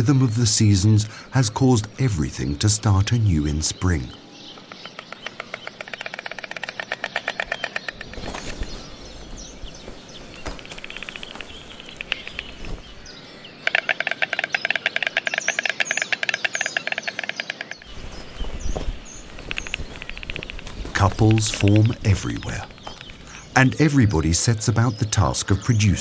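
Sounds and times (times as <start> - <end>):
storks clattering bills: 2.0 - 9.0, 10.4 - 13.0, 19.2 - 24.0
faint high bird chirps: 2.2 - 26.0.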